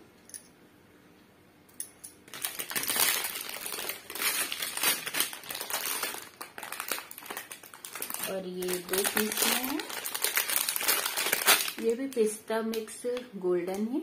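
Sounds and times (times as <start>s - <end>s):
plastic packet crinkling: 2.3s - 12.9s.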